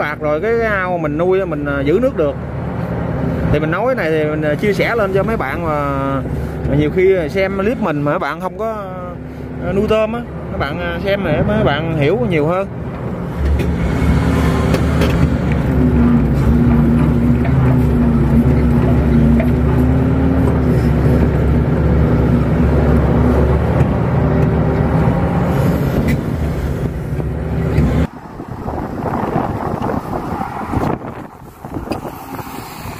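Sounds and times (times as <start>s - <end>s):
excavator diesel engine running: 10.3s - 30.6s.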